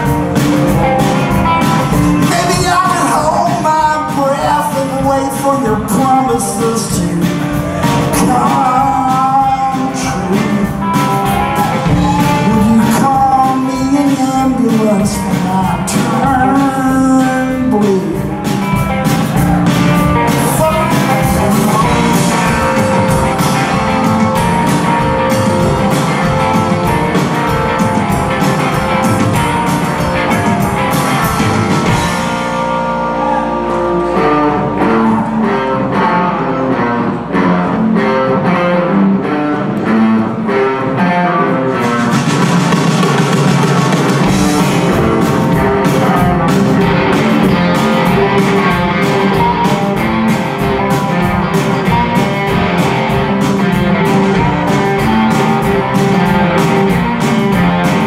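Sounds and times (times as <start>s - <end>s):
live rock band: 0.0s - 58.0s
man singing: 1.9s - 24.1s, 44.2s - 50.2s.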